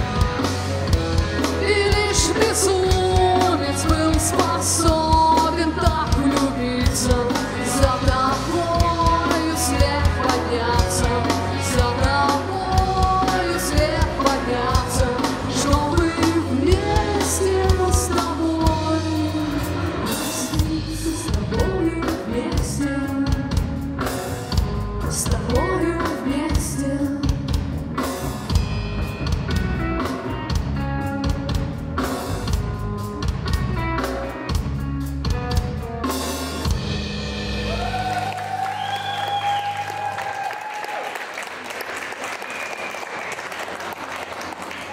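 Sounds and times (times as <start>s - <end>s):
bass guitar: 0.0s - 40.4s
drum kit: 0.0s - 41.0s
electric guitar: 0.0s - 41.0s
person singing: 1.6s - 23.6s, 25.1s - 27.4s.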